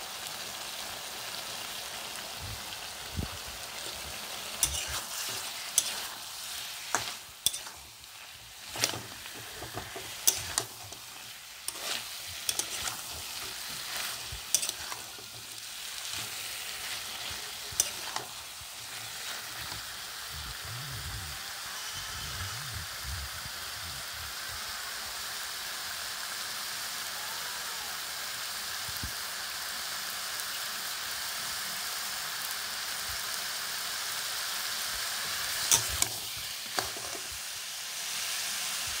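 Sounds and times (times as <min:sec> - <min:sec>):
potatoes sizzling in oil: 0:00.0 - 0:39.0
metal spatula clicking on pan: 0:04.6 - 0:05.0, 0:06.9 - 0:07.8, 0:12.5 - 0:15.2.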